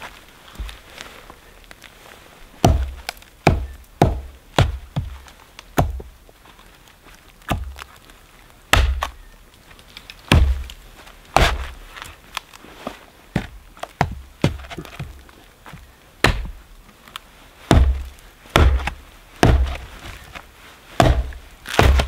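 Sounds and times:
axe chopping wood: 0:02.6 - 0:06.1, 0:07.5 - 0:07.8, 0:08.7 - 0:09.2, 0:10.3 - 0:10.7, 0:11.3 - 0:11.8, 0:13.4 - 0:15.2, 0:16.2 - 0:16.6, 0:17.7 - 0:19.9, 0:21.0 - 0:22.0.

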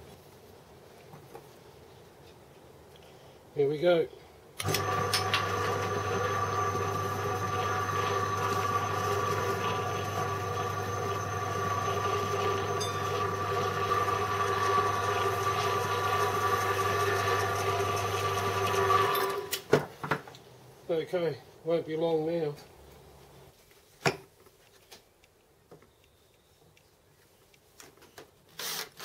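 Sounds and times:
electric motor humming and whining: 0:04.6 - 0:19.5.

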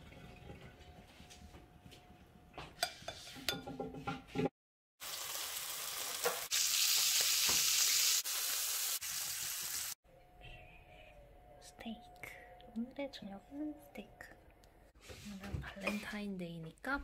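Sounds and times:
steak sizzling in frying pan: 0:05.0 - 0:10.0.

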